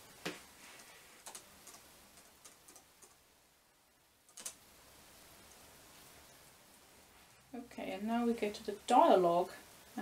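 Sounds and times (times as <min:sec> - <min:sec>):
laptop keyboard typing: 0:01.2 - 0:03.2, 0:04.3 - 0:04.6.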